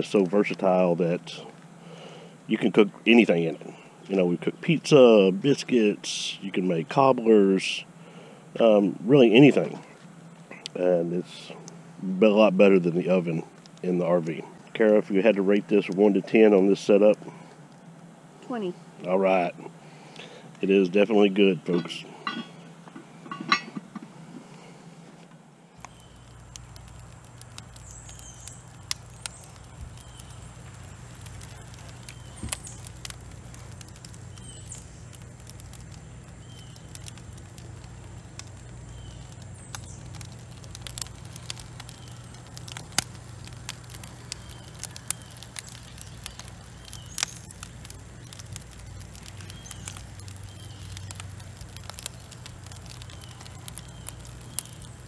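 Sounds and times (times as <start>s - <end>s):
sharp ticks and pops: 0.0s - 0.8s, 13.5s - 16.0s, 25.8s - 55.0s
charcoal crackling: 0.0s - 25.1s, 25.8s - 55.0s
steady low hum: 0.0s - 55.0s.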